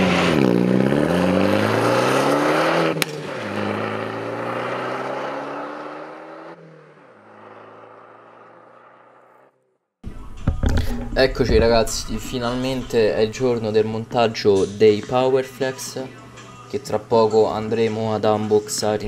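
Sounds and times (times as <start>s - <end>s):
car accelerating through gears: 0.0s - 9.5s.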